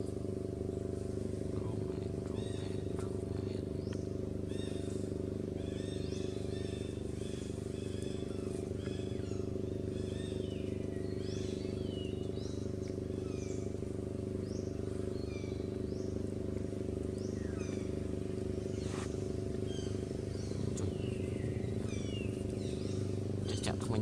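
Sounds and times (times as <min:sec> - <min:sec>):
low engine-like hum: 0:00.0 - 0:24.0
quick bird chirps: 0:16.8 - 0:24.0.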